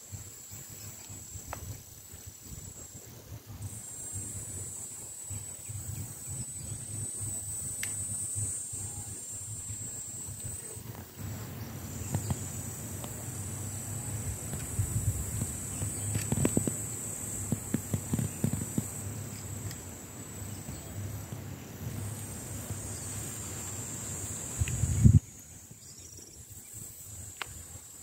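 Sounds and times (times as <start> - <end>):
insects singing: 3.7 - 28.0
low thumps and rustles: 14.3 - 19.8.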